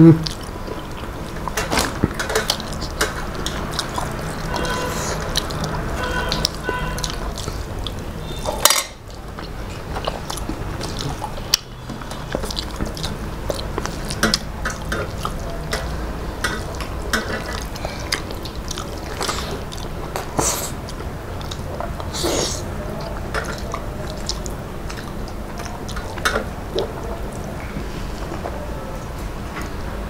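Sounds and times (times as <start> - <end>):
chewing: 0.1 - 29.8
fingers squishing food: 0.2 - 27.7.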